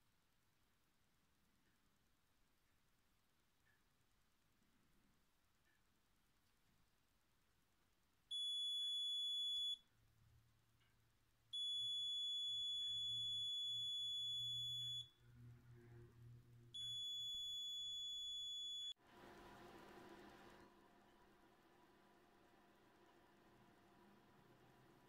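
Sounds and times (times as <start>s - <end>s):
faint steady noise: 0.0s - 25.0s
electronic buzzer beeping: 11.6s - 15.1s, 16.8s - 18.9s.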